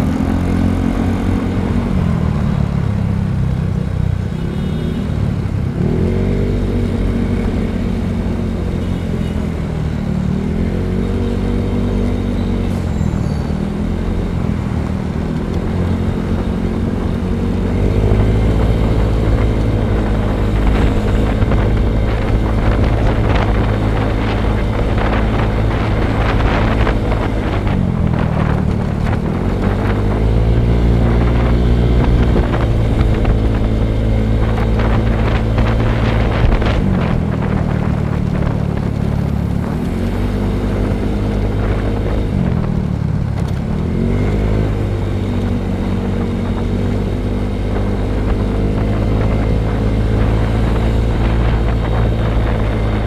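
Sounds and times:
wind noise on microphone: 10.4s - 53.0s
motorcycle engine running: 13.3s - 53.0s.

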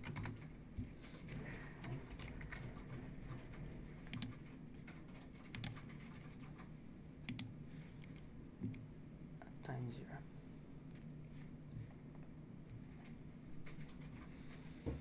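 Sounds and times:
mouse clicks: 7.3s - 7.5s.

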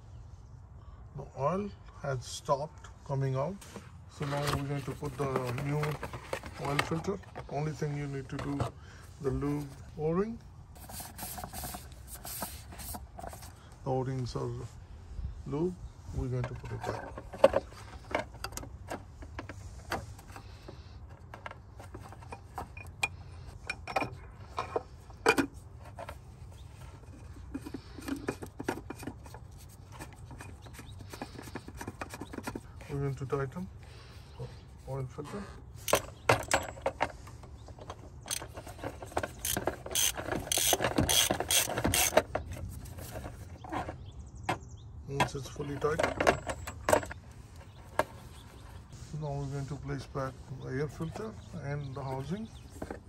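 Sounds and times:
hand ratchet clicking: 39.3s - 42.2s.

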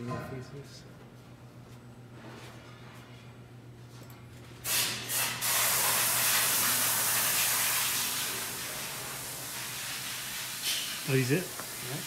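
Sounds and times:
loud hiss: 4.6s - 12.0s.

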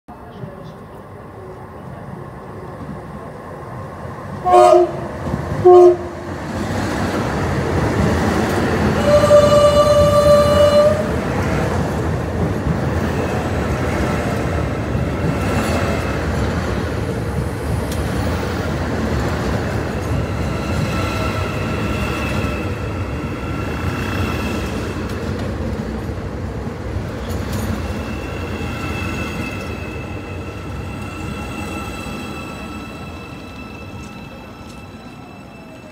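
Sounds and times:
train wheels rumbling on rail: 0.1s - 35.9s
train horn blast: 4.4s - 6.3s, 9.0s - 11.2s.

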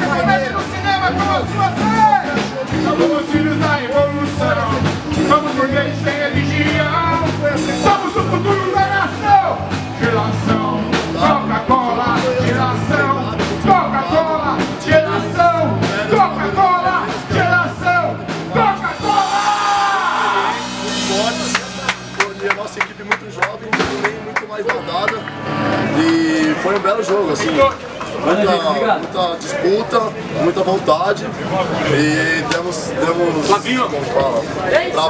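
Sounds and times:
rock song with singing: 0.0s - 23.1s
steady bass line: 0.0s - 26.8s.

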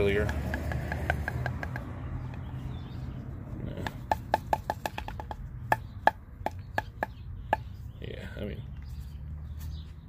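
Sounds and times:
hollow knocks of rubber hose: 0.0s - 2.5s, 3.7s - 7.9s.

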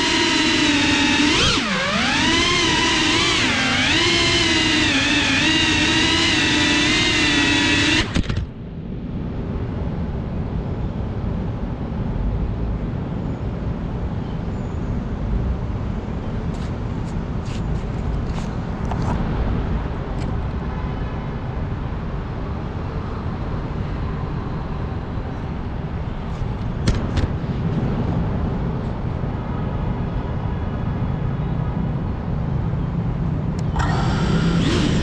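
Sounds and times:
faint motor whine: 0.0s - 9.0s, 33.5s - 35.0s
propeller wash and wind rumble: 0.0s - 35.0s
sharp clicks: 0.4s - 8.5s.

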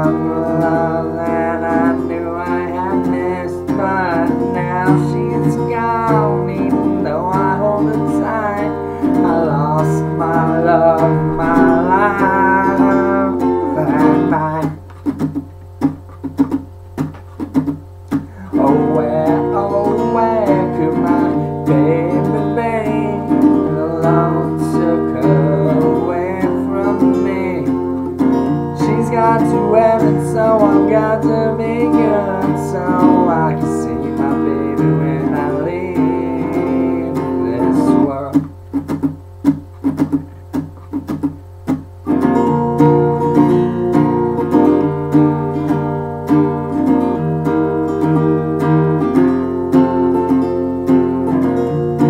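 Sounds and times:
man's wordless singing: 0.0s - 14.9s, 18.4s - 28.0s, 28.7s - 38.6s
acoustic guitar strumming: 0.0s - 52.0s.

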